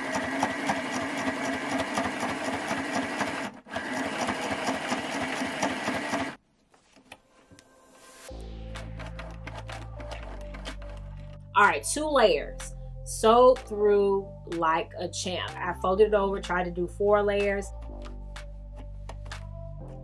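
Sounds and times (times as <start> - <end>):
sewing machine stitching: 0.0 - 6.4.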